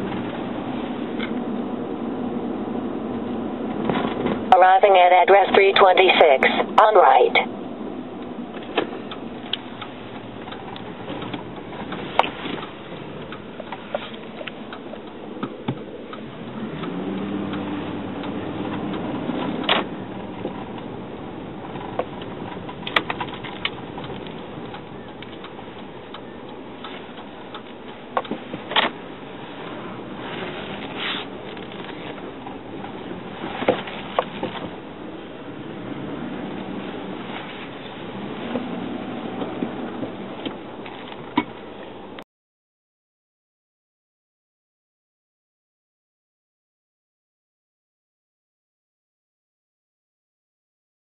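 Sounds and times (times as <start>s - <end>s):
car cabin noise: 0.0s - 42.2s
small clicks and ticks: 21.7s - 28.4s.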